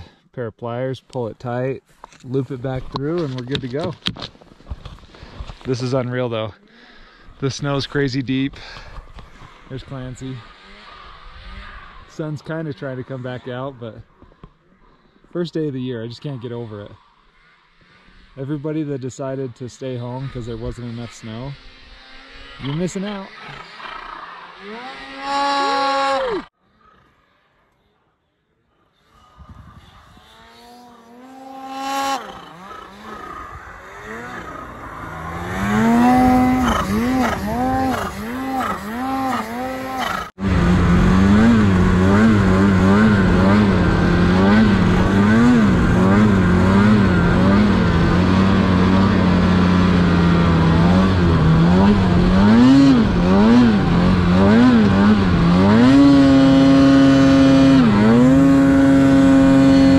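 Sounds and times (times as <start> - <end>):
snowmobile engine revving: 4.8 - 26.6, 29.0 - 59.9.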